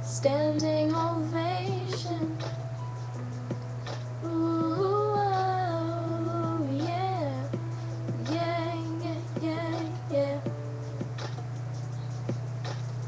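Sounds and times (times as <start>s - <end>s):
quiet backing music: 0.0s - 13.0s
girl singing long notes: 4.2s - 10.6s.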